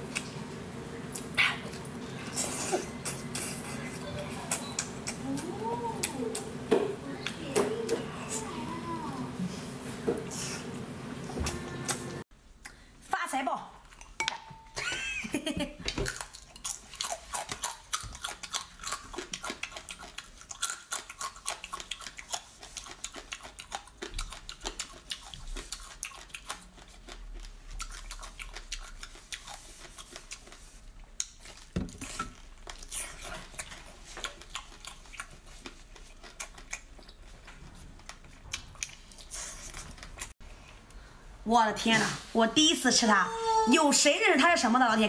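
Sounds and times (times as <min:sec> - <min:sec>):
chewing and biting: 0:16.0 - 0:40.8.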